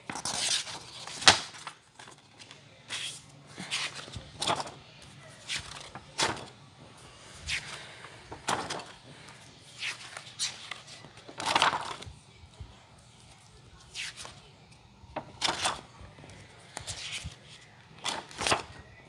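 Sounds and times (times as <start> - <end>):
sketchbook pages turning: 0.0 - 6.6, 7.4 - 12.1, 13.3 - 19.0.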